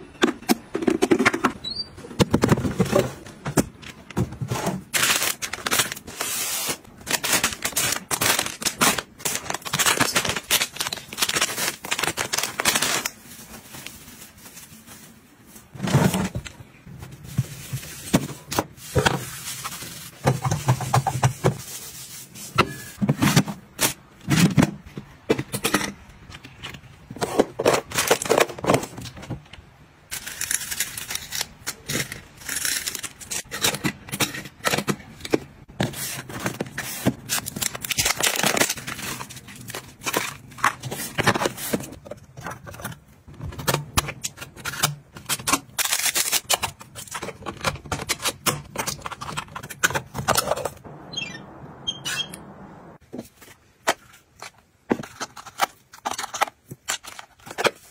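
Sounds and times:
rustling plastic and cloth: 2.2 - 25.3.

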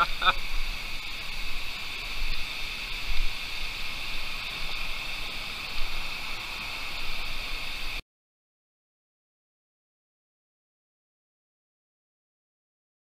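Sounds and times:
stony stream running: 0.0 - 8.0.

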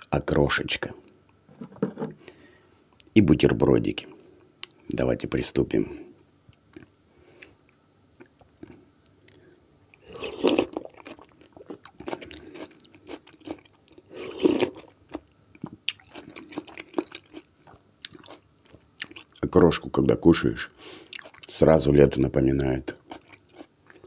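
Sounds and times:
wet crunchy chewing: 8.2 - 19.4, 21.1 - 21.6, 23.0 - 24.0.

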